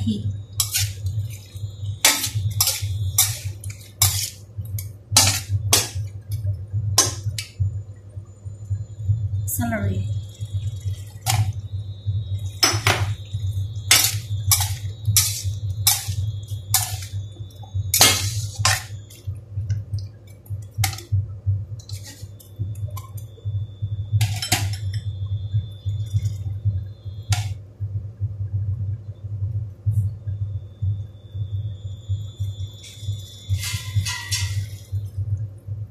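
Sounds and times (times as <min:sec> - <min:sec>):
metal spatula scraping wok: 0:00.6 - 0:01.4, 0:02.0 - 0:04.4, 0:05.2 - 0:06.0, 0:13.9 - 0:17.1, 0:18.0 - 0:18.9, 0:21.9 - 0:22.3, 0:33.5 - 0:34.8.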